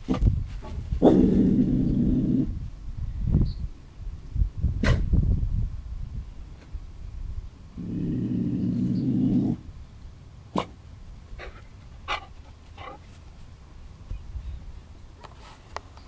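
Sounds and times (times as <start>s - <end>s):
dog growling: 1.0s - 2.6s, 7.8s - 9.7s.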